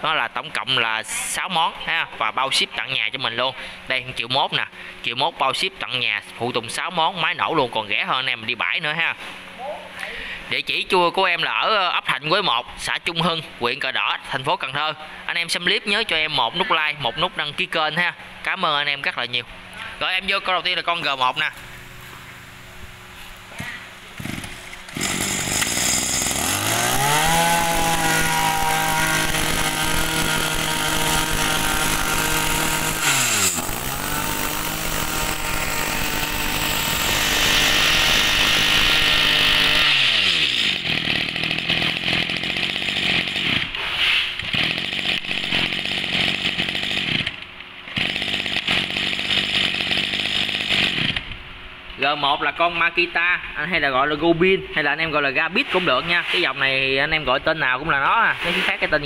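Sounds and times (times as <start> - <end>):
brush cutter engine revving: 23.5 - 51.3.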